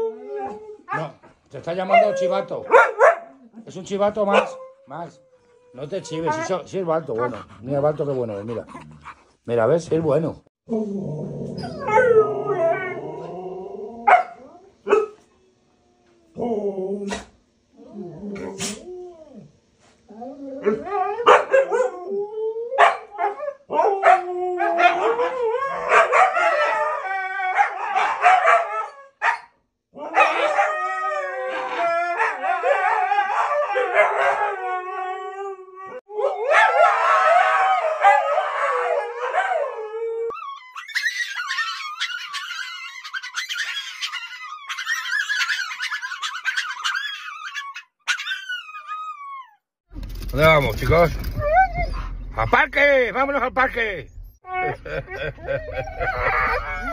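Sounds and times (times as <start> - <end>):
dogs yowling and woo-wooing: 0.0 - 1.2, 1.8 - 3.5, 4.2 - 6.6, 10.7 - 19.5, 20.1 - 29.4, 30.0 - 52.3, 54.1 - 56.9
dog howling: 0.0 - 7.5, 10.7 - 15.2, 20.1 - 29.2, 30.0 - 49.6, 50.2 - 52.3, 54.1 - 56.9
dog barking: 1.9 - 3.4, 4.3 - 4.6, 14.1 - 15.2, 21.2 - 21.9, 22.8 - 26.8, 27.5 - 29.5, 30.1 - 30.7, 32.2 - 34.5, 36.2 - 37.2, 38.0 - 39.6.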